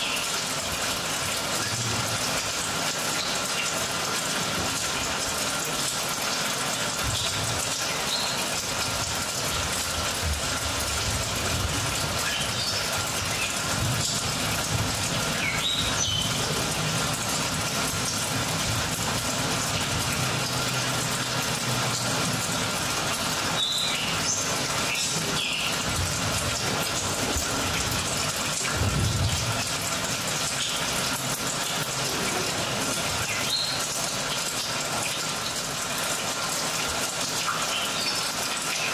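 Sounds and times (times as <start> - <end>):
rushing water-like noise: 0.0 - 38.9.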